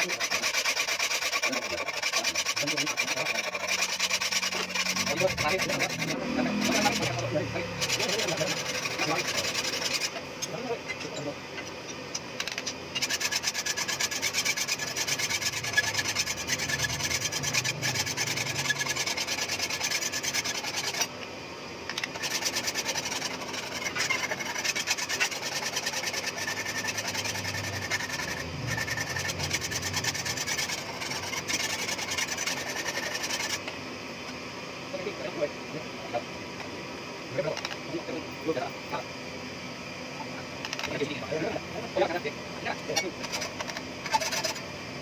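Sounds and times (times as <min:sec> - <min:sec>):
file rasping on knife blade: 0:00.0 - 0:11.3, 0:12.4 - 0:21.1, 0:21.9 - 0:33.8, 0:42.8 - 0:44.7.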